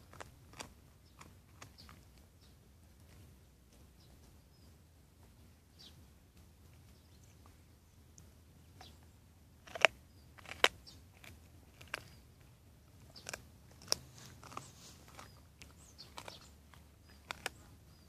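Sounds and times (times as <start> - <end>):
dog gnawing and crunching bone: 0.0 - 2.3, 9.6 - 18.0.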